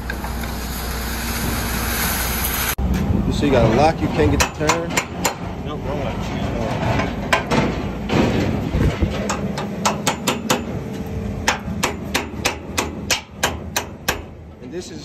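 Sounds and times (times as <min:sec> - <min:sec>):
hammer striking metal: 0:04.2 - 0:05.6, 0:09.2 - 0:14.4.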